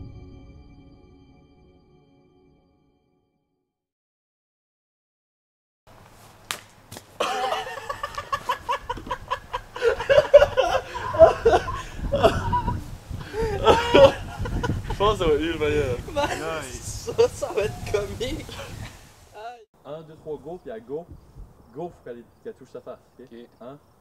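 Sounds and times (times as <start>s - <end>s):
sharp smacks: 6.4s - 7.1s
men laughing: 7.2s - 19.1s
men yelling: 13.4s - 14.2s, 15.0s - 18.8s.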